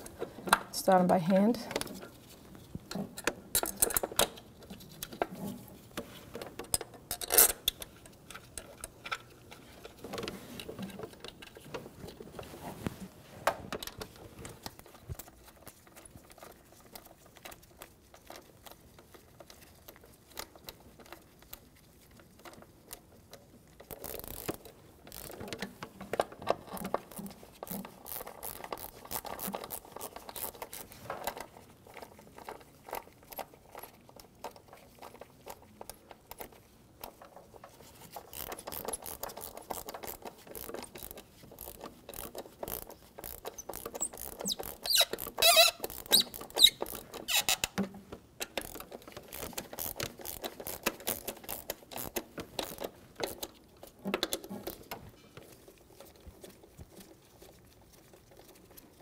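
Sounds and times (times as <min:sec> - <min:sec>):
ratchet clicking: 0:23.9 - 0:25.4, 0:28.1 - 0:30.8, 0:38.2 - 0:47.6, 0:48.5 - 0:53.4.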